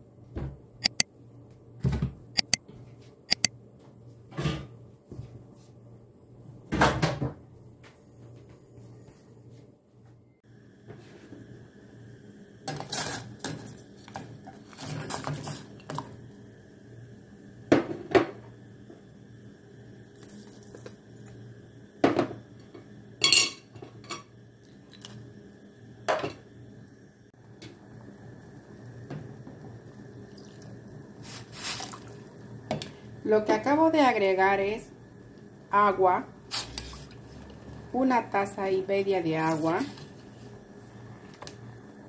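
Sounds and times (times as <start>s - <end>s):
faint steady hum: 7.4s - 42.0s
water pouring: 30.0s - 32.5s.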